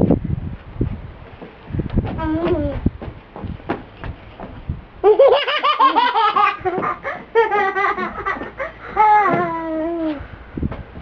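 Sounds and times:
small child giggling: 0:05.0 - 0:10.2.

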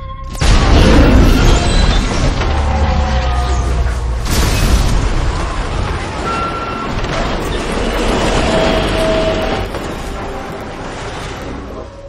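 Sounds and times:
metallic squeals: 0:06.2 - 0:12.0.

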